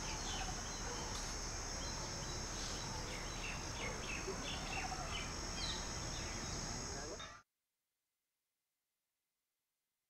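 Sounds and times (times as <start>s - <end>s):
insect chirps: 0.0s - 7.4s.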